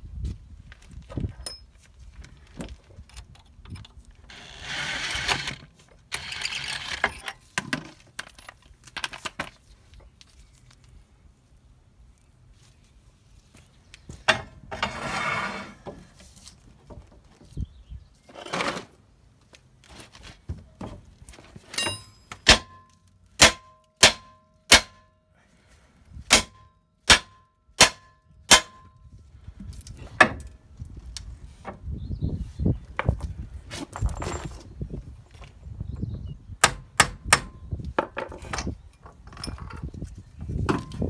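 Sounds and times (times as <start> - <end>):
hammer striking metal: 21.8 - 25.1, 26.3 - 28.9.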